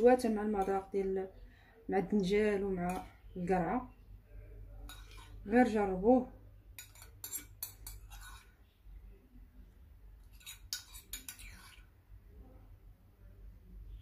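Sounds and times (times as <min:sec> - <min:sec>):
spoon scraping a bowl: 0:00.0 - 0:01.0, 0:02.7 - 0:03.4, 0:04.7 - 0:05.8, 0:06.7 - 0:08.7, 0:10.2 - 0:12.0.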